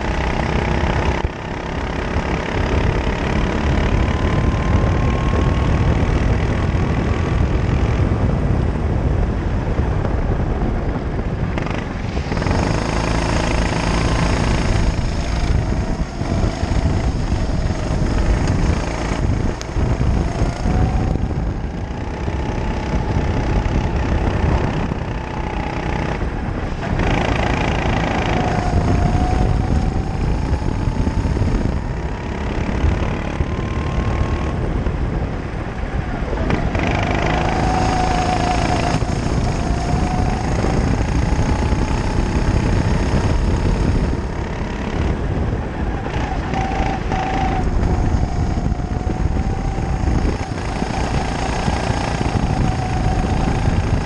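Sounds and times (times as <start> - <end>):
kart engine revving: 0.0 - 54.0
wind and road noise: 0.0 - 54.0.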